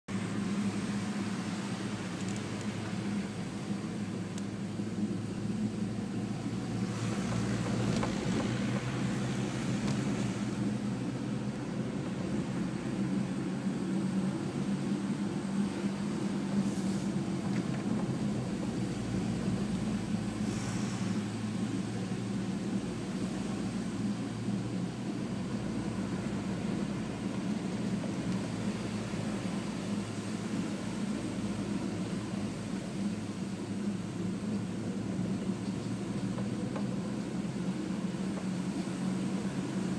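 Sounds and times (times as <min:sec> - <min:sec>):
road noise: 0:00.0 - 0:39.9
car engine drone: 0:00.1 - 0:39.9.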